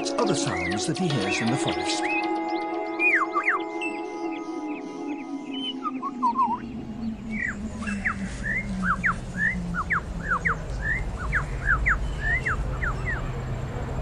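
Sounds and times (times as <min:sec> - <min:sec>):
lyrebird chirping: 0:00.2 - 0:14.0
low held tone: 0:05.4 - 0:13.3.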